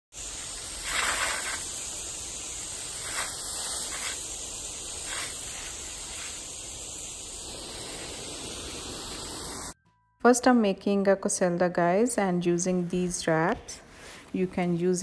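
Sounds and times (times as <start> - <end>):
garden sprinkler spraying water: 0.1 - 9.8.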